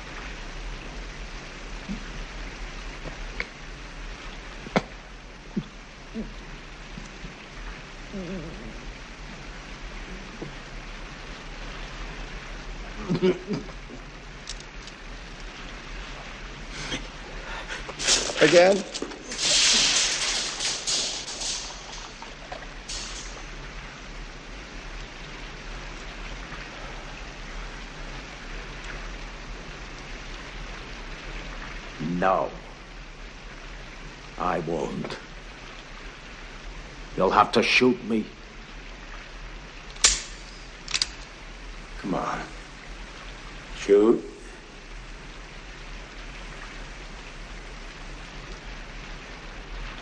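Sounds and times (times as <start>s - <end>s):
rushing water: 0.0s - 50.0s
rushing hiss: 7.9s - 24.2s, 40.0s - 45.4s.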